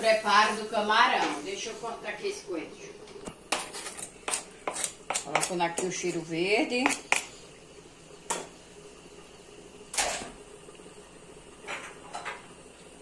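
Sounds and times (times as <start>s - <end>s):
soft scrapes: 3.5s - 5.0s.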